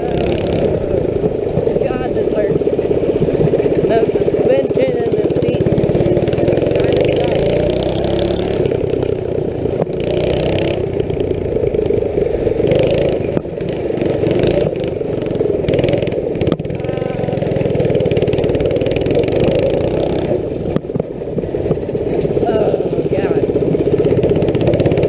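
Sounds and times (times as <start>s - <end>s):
small go-kart engine running: 0.0s - 25.0s.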